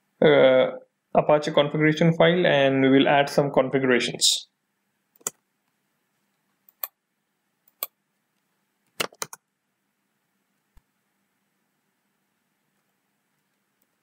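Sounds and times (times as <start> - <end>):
keyboard key clicks: 9.0 - 9.4.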